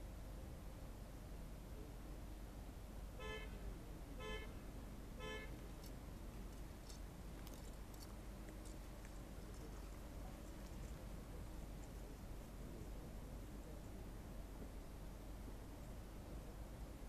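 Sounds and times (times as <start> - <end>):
signal horn blasts: 3.2 - 3.6, 4.2 - 4.6, 5.2 - 5.6.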